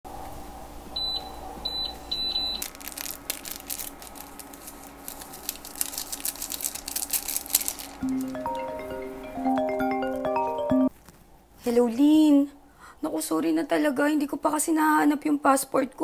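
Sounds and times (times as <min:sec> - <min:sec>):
dry food crunching: 0:02.4 - 0:08.5
plastic packets crinkling and tearing: 0:02.4 - 0:08.5
soft mallet percussion music: 0:08.0 - 0:10.9.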